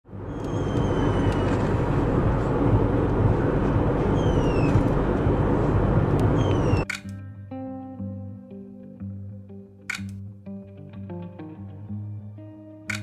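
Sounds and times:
car road noise from inside: 0.1s - 6.8s.

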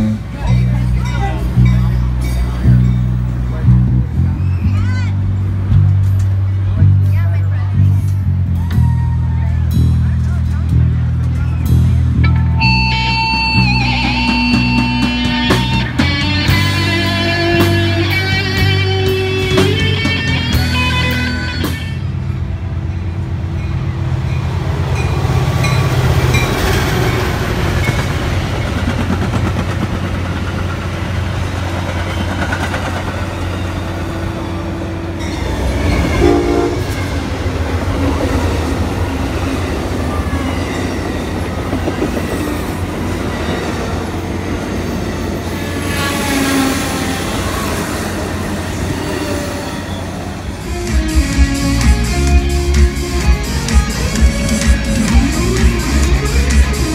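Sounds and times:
diesel locomotive engine rumble: 0.0s - 56.9s
train wheels clattering on track: 23.5s - 34.6s, 35.2s - 51.6s
train horn: 34.1s - 37.5s, 45.8s - 50.0s.

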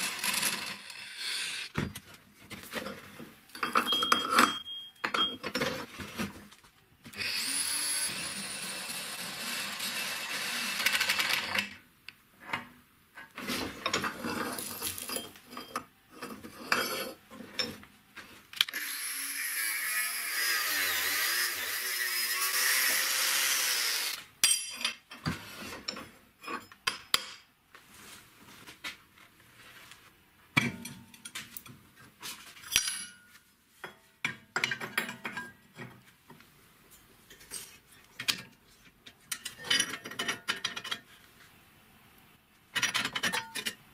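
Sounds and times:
drill cutting through steel: 0.0s - 1.7s, 7.2s - 11.6s, 18.7s - 24.3s
steel pieces and tools clinking: 3.5s - 5.8s, 13.8s - 17.8s, 24.4s - 25.2s, 32.6s - 35.9s, 37.3s - 41.1s, 42.7s - 43.8s.

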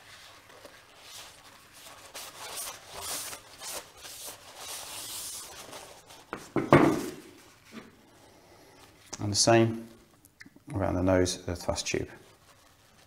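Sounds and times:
cloth rubbing strokes: 0.0s - 10.1s, 11.6s - 13.0s
object knocking on wooden bench: 6.4s - 7.2s.

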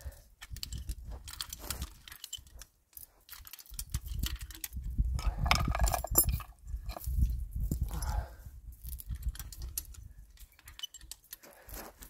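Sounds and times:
chain strainer clicking and rattling: 0.5s - 2.6s, 3.2s - 7.3s, 8.9s - 11.4s.

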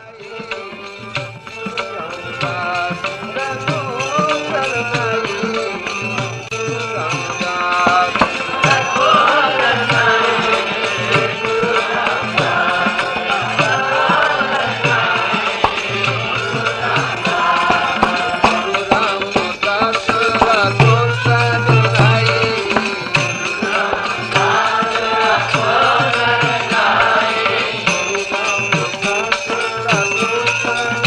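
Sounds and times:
tabla drumming: 0.0s - 31.0s.

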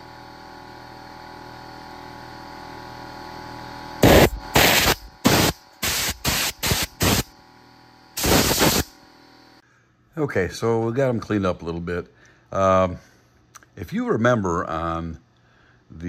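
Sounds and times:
steady multi-tone hum: 3.8s - 16.0s
compressed air blasts: 4.0s - 7.3s, 8.2s - 8.9s.

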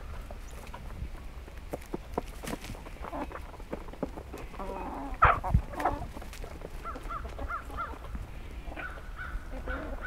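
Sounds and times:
bird cawing squawk: 8.8s - 10.0s.

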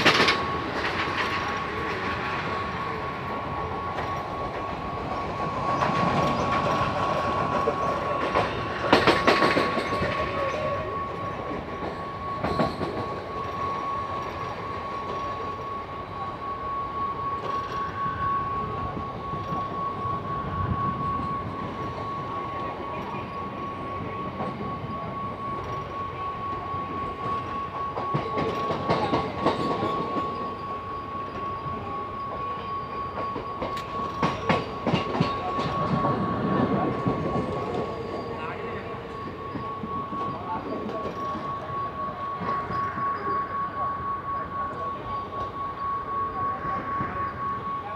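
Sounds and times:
wheels clacking over rail joints: 0.0s - 2.6s, 3.9s - 13.3s
train wheels and air rushing: 0.0s - 47.9s.

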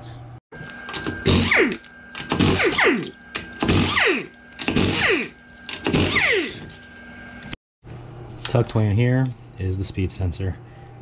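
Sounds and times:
impact wrench bursts: 0.9s - 6.8s
motor whine spinning down: 1.2s - 7.6s.

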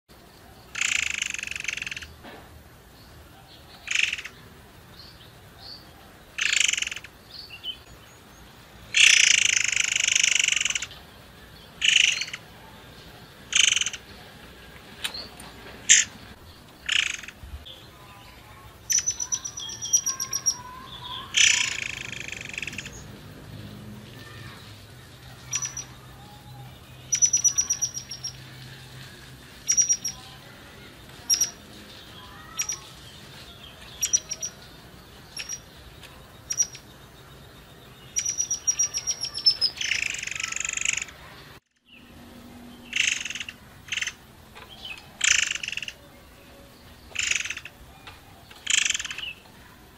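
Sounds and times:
bird chirping and trilling: 0.6s - 2.2s, 3.0s - 14.4s, 15.0s - 49.8s
harsh raspy bird call: 0.7s - 2.2s, 3.6s - 4.4s, 5.6s - 7.9s, 8.9s - 14.3s, 15.1s - 17.4s, 18.2s - 35.8s, 36.4s - 36.8s, 38.1s - 41.4s, 42.8s - 46.0s, 47.1s - 49.4s.

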